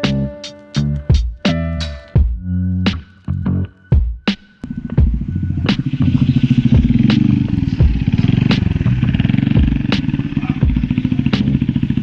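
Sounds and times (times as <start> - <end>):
scooter engine running: 4.6 - 12.0.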